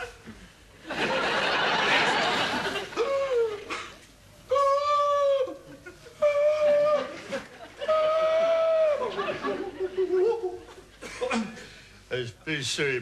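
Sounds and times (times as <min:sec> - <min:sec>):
audience laughing: 0:00.8 - 0:03.0, 0:05.7 - 0:11.5.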